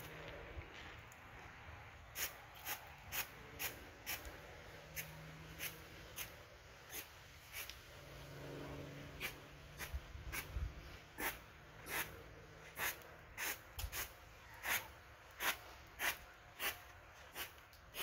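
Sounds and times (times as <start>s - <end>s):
push broom sweeping artificial grass: 2.0s - 18.0s.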